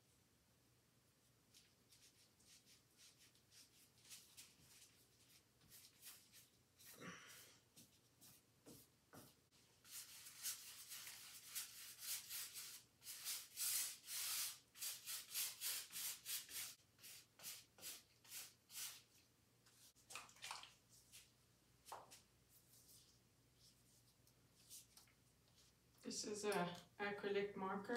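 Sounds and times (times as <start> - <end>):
paintbrush scrubbing on canvas: 1.5 - 20.0, 21.9 - 25.8.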